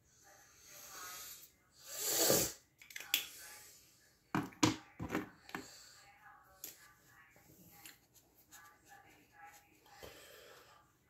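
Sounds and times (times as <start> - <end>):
breathing close to microphone: 9.9 - 10.9.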